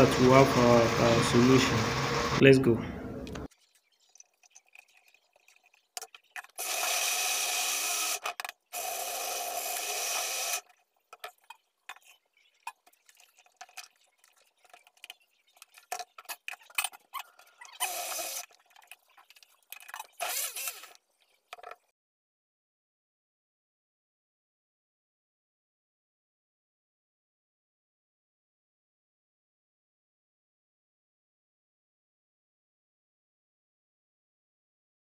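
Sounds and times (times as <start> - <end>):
blender grinding: 0.0 - 2.6, 6.2 - 12.8, 15.6 - 21.7
clicks and handling noises: 8.2 - 8.7, 10.6 - 21.9.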